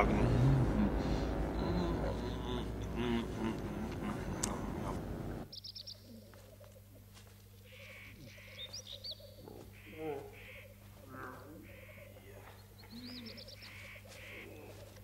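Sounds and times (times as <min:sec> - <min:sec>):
loud dense mix of sound: 0:00.0 - 0:05.5
steady low hum: 0:00.0 - 0:15.0
forest birdsong chirps: 0:00.9 - 0:15.0.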